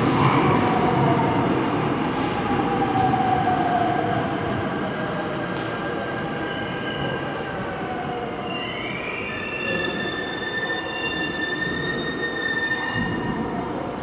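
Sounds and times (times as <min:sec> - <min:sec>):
train rumbling: 0:00.0 - 0:08.5.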